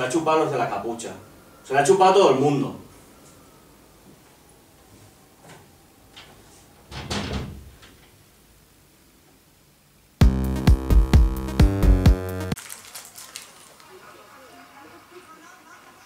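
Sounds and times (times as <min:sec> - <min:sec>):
door shutting: 0:05.4 - 0:08.2
electronic music sting: 0:10.2 - 0:12.6.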